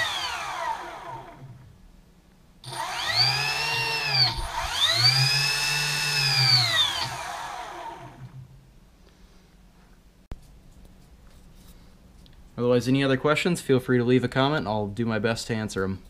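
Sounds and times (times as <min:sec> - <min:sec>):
electric thrusters whining: 0:02.6 - 0:08.4.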